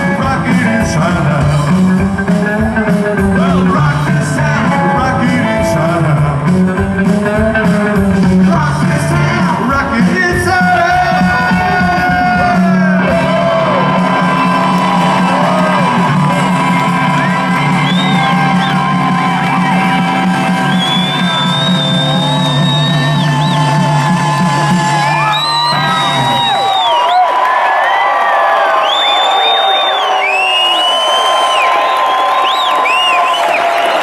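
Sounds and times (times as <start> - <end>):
upright bass: 0.0 - 26.6
crowd shouting and whooping: 10.4 - 34.0.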